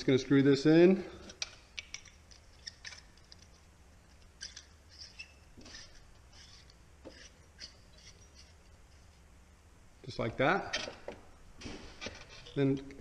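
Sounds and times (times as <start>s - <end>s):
small clicks and scraping: 1.2s - 9.2s, 10.7s - 13.0s.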